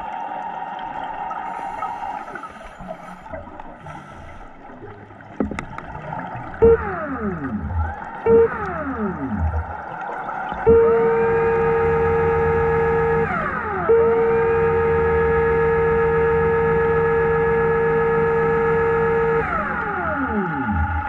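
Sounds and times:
electric motor whining underwater: 0.0s - 21.0s.

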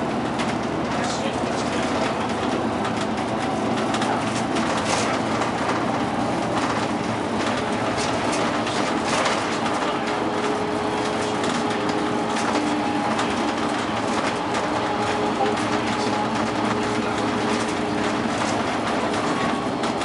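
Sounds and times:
bus engine and road noise: 0.0s - 20.0s.

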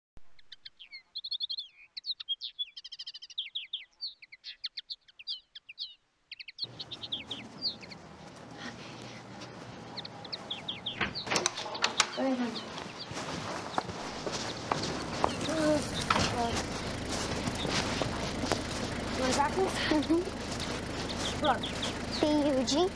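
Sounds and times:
songbirds chirping and warbling: 0.4s - 22.9s
outdoor ambience hiss: 6.0s - 22.9s.

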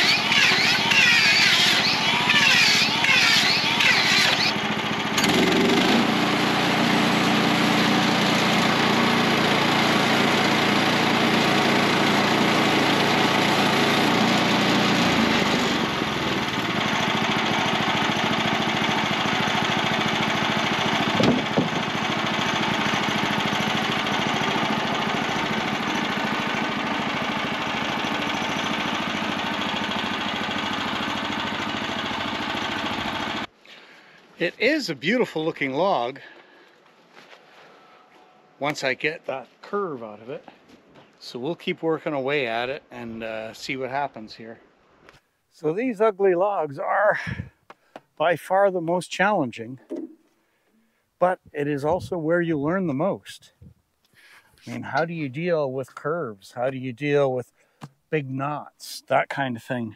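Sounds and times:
sawmill gas engine running: 0.0s - 36.8s, 45.6s - 47.5s, 50.6s - 56.1s
thump: 21.2s - 21.8s.

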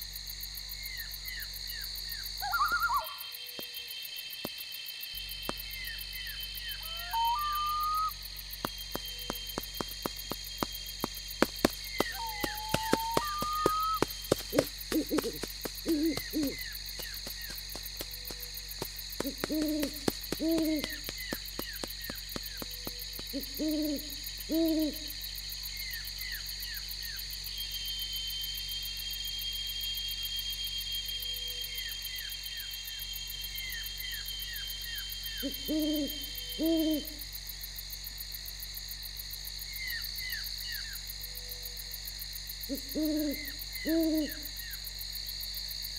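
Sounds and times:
high insect whine: 0.0s - 45.9s
owl hooting: 2.4s - 3.4s, 6.6s - 8.2s, 11.9s - 16.8s, 19.2s - 21.4s, 22.8s - 25.2s, 35.4s - 37.2s, 42.7s - 44.6s
faint chirping: 11.6s - 17.6s.

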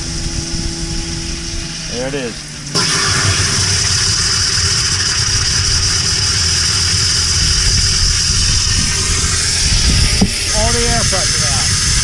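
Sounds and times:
water mist spitting: 2.7s - 12.0s
compressed air hissing from pipe: 2.8s - 12.0s.

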